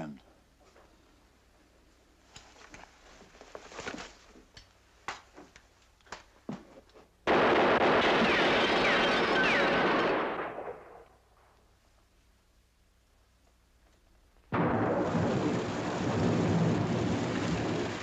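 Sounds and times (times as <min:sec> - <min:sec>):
burst of gunfire: 0:07.3 - 0:11.2, 0:14.5 - 0:18.0.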